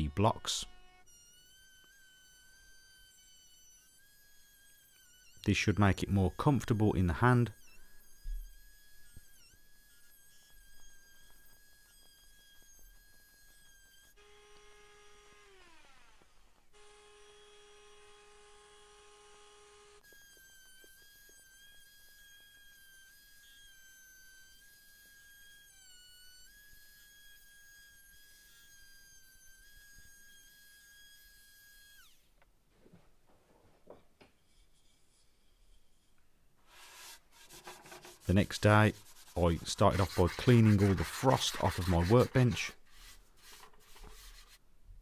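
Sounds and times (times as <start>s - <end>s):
trim router whine: 0.7s - 5.5s, 7.5s - 32.3s.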